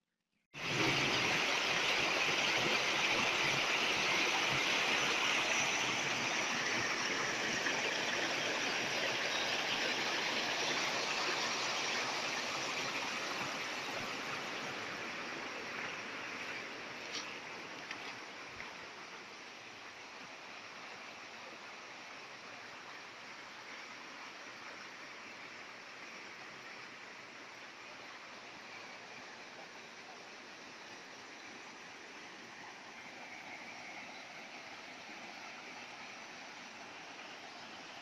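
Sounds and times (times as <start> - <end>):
stream rushing over rocks: 0.6 - 38.0.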